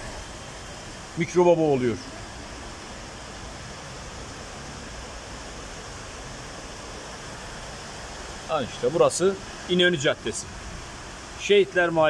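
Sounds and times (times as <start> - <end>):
floodwater rushing along a street: 0.0 - 12.0.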